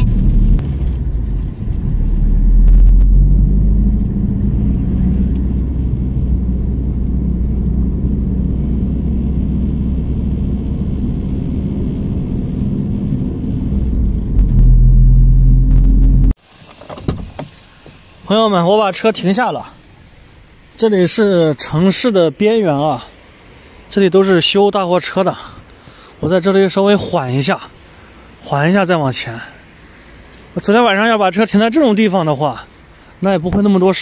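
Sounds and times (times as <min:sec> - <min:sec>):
van engine rumble: 0:00.0 - 0:24.5.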